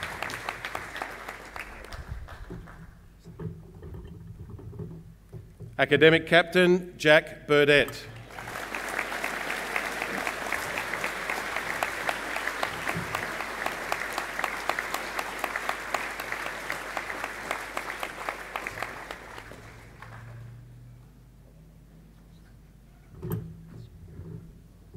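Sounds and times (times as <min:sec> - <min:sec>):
audience applauding: 0:00.0 - 0:03.1, 0:08.1 - 0:20.6.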